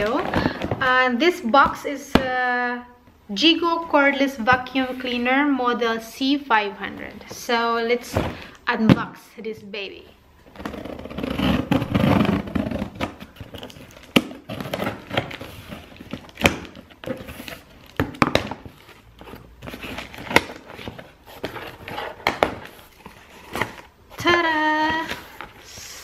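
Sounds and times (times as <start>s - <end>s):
cardboard rustling: 10.5s - 25.7s.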